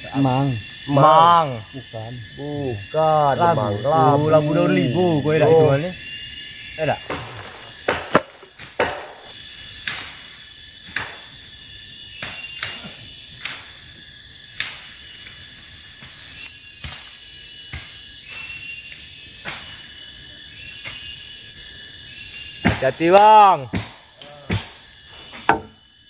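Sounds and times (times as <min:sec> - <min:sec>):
insects droning: 0:00.0 - 0:26.0
wood chopping knocks: 0:07.1 - 0:09.3, 0:22.7 - 0:24.7, 0:25.3 - 0:25.8.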